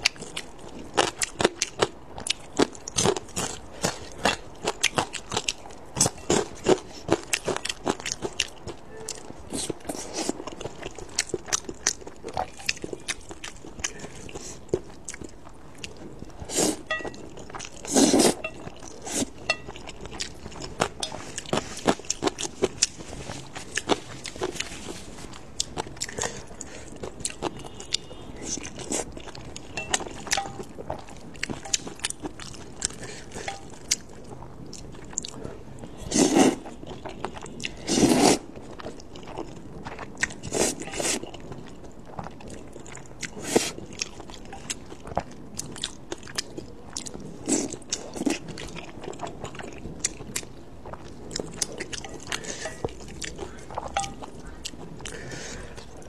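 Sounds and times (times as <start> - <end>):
chewing noodles: 0.0 - 56.0
slurping noodles: 16.4 - 16.9, 17.8 - 18.4, 36.0 - 36.6, 37.8 - 38.5, 40.4 - 41.2.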